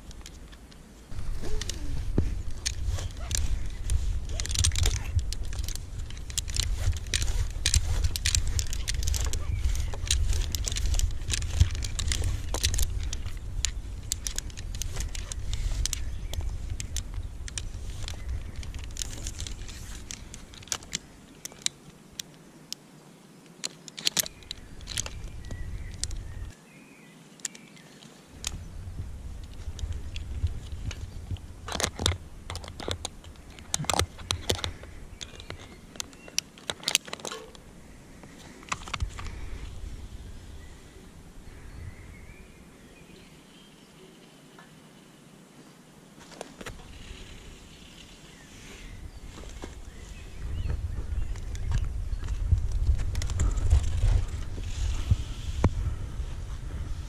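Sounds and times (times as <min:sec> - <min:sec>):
wind rumble on microphone: 0:00.0 - 0:21.4, 0:24.2 - 0:26.6, 0:28.3 - 0:36.4, 0:37.5 - 0:43.3, 0:46.6 - 0:57.0
metal climbing hardware clinking: 0:00.0 - 0:22.4, 0:23.6 - 0:26.4, 0:29.3 - 0:37.7, 0:51.4 - 0:55.1.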